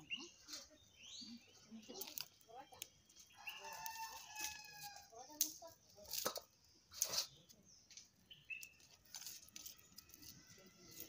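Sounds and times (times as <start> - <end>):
faint bird chirps: 0.0 - 4.4
dry onion skins crackling: 0.1 - 11.0.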